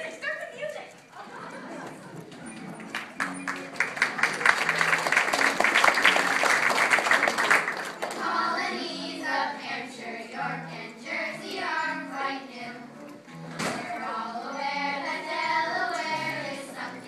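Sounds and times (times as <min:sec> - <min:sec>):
musical accompaniment: 0:01.0 - 0:17.0
audience clapping: 0:01.7 - 0:08.4
children singing: 0:08.0 - 0:17.0.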